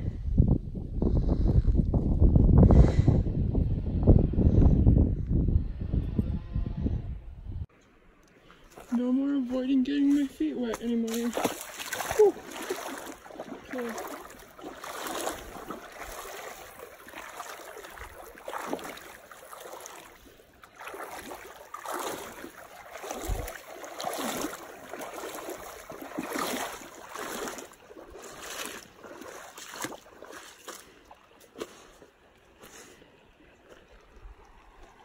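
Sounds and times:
water sloshing with steps: 0:08.4 - 0:35.0
rushing stream water: 0:09.9 - 0:35.0.

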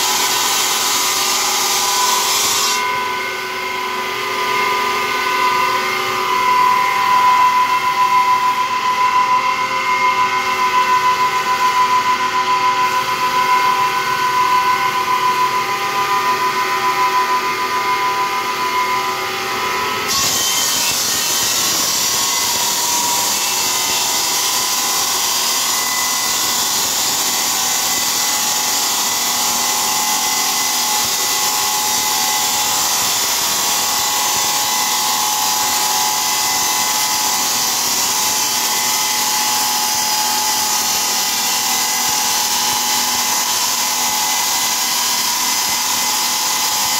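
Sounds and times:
saw blade grinding through stone: 0:00.0 - 0:03.5, 0:20.1 - 0:46.9
circular stone saw whining: 0:00.0 - 0:46.9.

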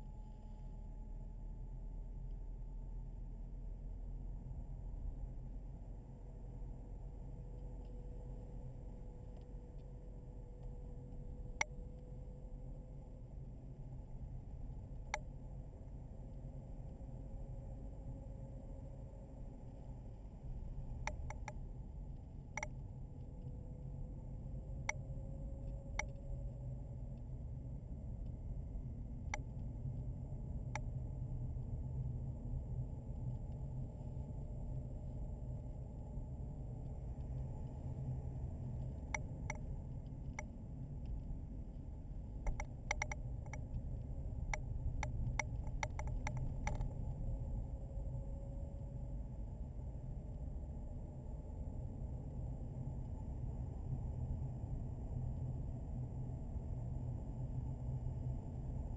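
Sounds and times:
faint high whine: 0:00.0 - 0:58.9
sharp ticks: 0:21.1 - 0:21.6, 0:42.5 - 0:43.8, 0:44.5 - 0:46.9
sharp clicks: 0:42.5 - 0:43.7, 0:44.5 - 0:46.9.

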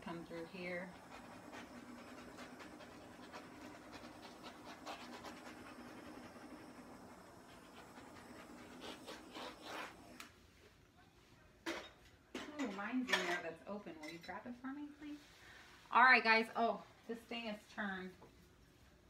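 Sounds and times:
torch flame hissing: 0:00.0 - 0:10.3.

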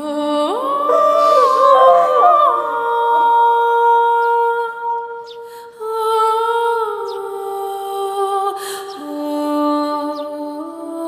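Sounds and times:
wordless humming voice: 0:00.2 - 0:04.9
sustained chords: 0:00.5 - 0:05.2.

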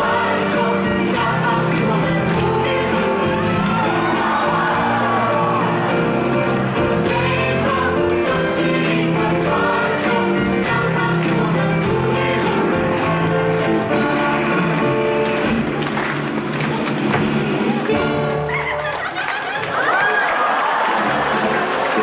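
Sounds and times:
cast singing together: 0:00.0 - 0:04.8, 0:07.0 - 0:15.2
band music: 0:00.0 - 0:19.0.

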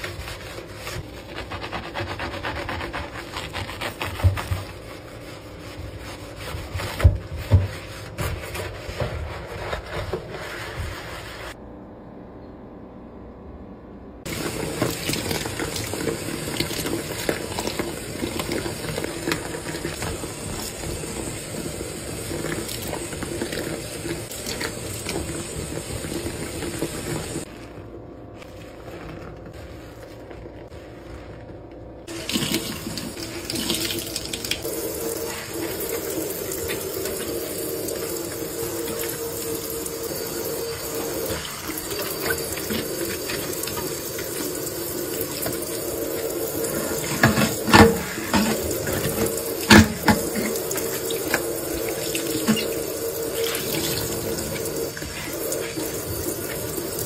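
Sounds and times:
sponge scrubbing sink: 0:00.0 - 0:11.6, 0:14.2 - 0:57.0
tap water running into sink: 0:14.3 - 0:27.5, 0:32.1 - 0:57.0.

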